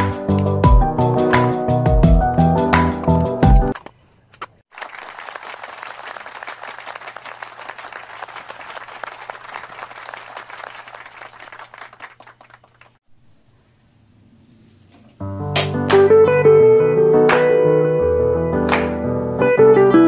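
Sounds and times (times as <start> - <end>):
many hands clapping: 4.7 - 13.0, 18.7 - 19.0.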